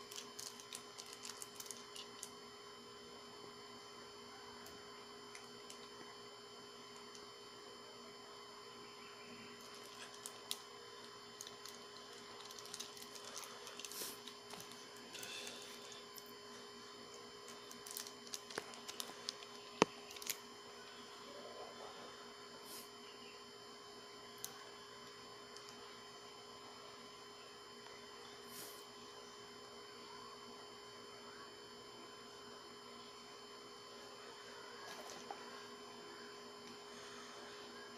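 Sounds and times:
plastic sleeve crinkling: 0:00.0 - 0:02.3, 0:09.6 - 0:15.6, 0:17.1 - 0:20.4
small ticks: 0:00.0 - 0:02.3
steady electrical hum: 0:00.0 - 0:37.9
plastic sunglasses rustling: 0:00.1 - 0:02.3, 0:11.4 - 0:15.3, 0:17.4 - 0:20.4.

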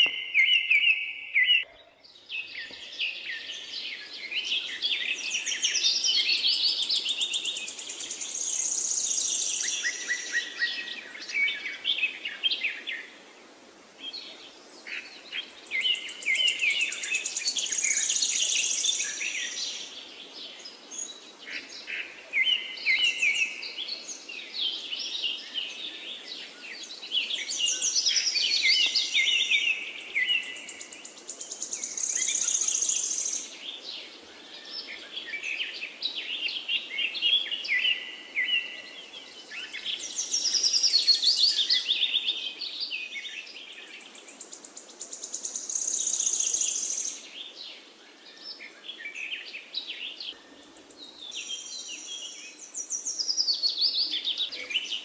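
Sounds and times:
birds chirping and singing: 0:00.0 - 0:13.2, 0:14.0 - 0:55.0.

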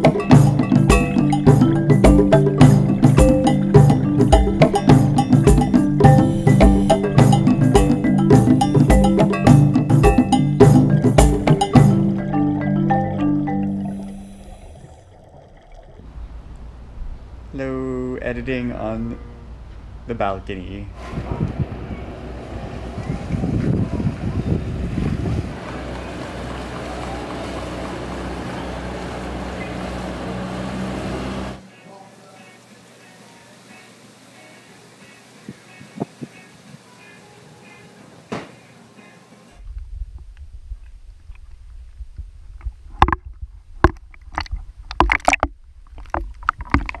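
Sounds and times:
low steady rumble: 0:00.0 - 0:31.6, 0:39.6 - 0:47.0
waves lapping and splashing: 0:13.2 - 0:17.0, 0:22.6 - 0:39.2
wind on microphone: 0:20.9 - 0:25.8, 0:35.5 - 0:36.8, 0:39.6 - 0:47.0
small outboard motor running: 0:21.0 - 0:31.6.

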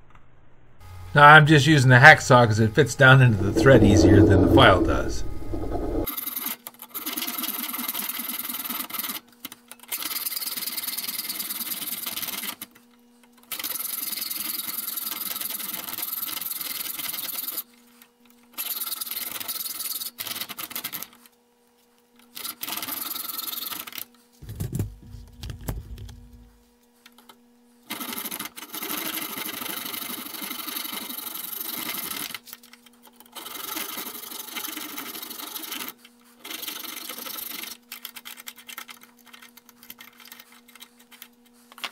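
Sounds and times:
brief low rumble: 0:03.2 - 0:06.1.

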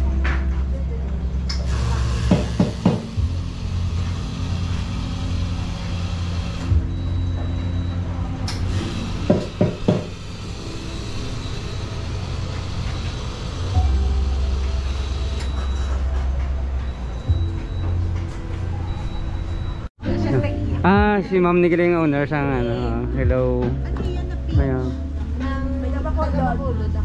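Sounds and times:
faint background music: 0:00.0 - 0:27.0.

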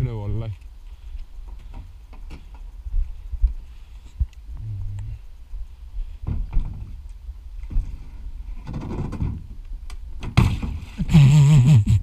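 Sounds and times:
loud thump: 0:10.2 - 0:10.9.

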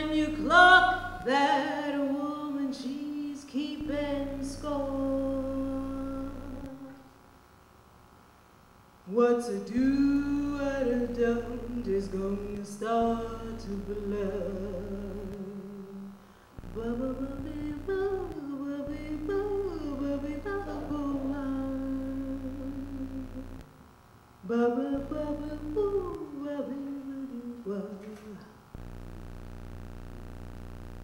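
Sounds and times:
woman singing a cappella: 0:00.0 - 0:07.2, 0:09.0 - 0:23.8, 0:24.4 - 0:28.6.

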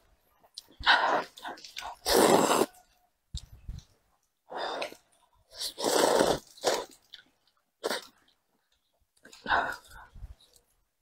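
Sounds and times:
person slurping noodles: 0:00.8 - 0:02.8, 0:04.6 - 0:07.0, 0:07.8 - 0:08.2.

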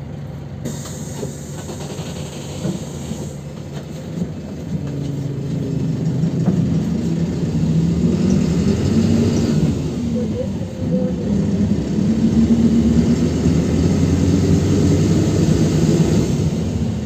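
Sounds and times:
bus engine from inside cabin: 0:00.0 - 0:17.0.

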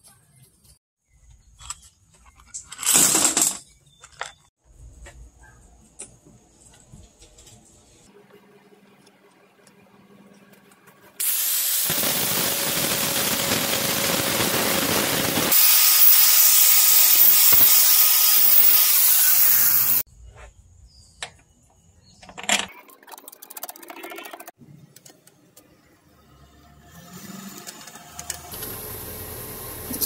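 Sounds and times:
angle grinder cutting steel: 0:11.2 - 0:20.0.

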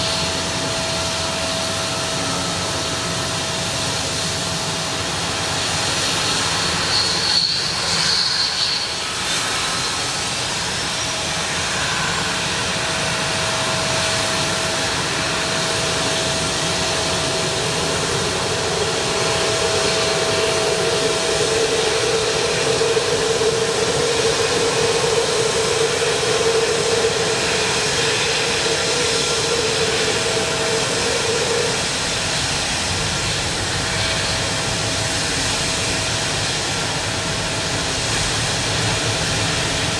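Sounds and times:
loud hum: 0:00.0 - 0:05.8
jet engines running: 0:00.0 - 0:39.9
thin high whine: 0:00.0 - 0:39.9.

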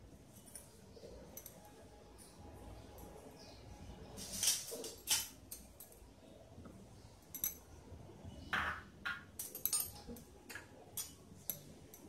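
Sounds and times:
metal spoon clinking on pot and bowls: 0:00.4 - 0:01.8, 0:04.2 - 0:06.1, 0:07.3 - 0:07.8, 0:08.6 - 0:12.0.

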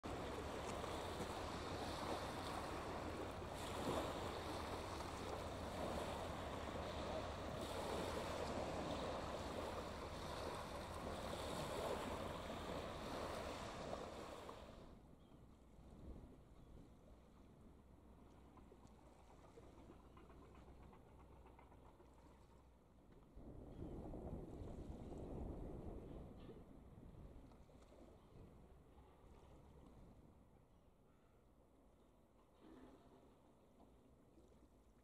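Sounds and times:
waves washing over shingle: 0:00.0 - 0:14.8.

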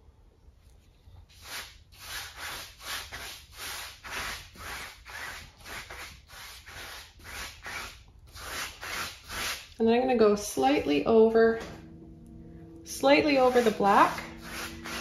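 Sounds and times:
brush scrubbing paint on canvas: 0:01.2 - 0:09.8, 0:13.4 - 0:15.0.

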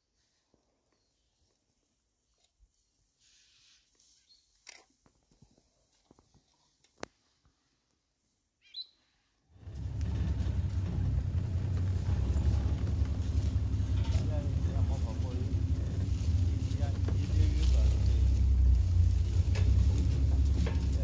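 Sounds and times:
bird chirp: 0:08.6 - 0:09.1
vehicle engine running: 0:09.6 - 0:21.0.

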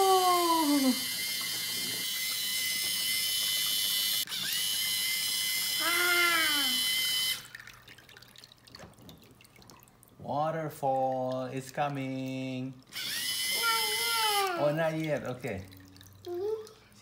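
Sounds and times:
child's vocal sound: 0:00.0 - 0:01.0, 0:05.8 - 0:06.9, 0:13.5 - 0:14.8, 0:16.3 - 0:17.0
water pump hiss and whine: 0:00.0 - 0:07.8, 0:12.9 - 0:15.5
water splashing: 0:06.6 - 0:13.0, 0:14.5 - 0:17.0.

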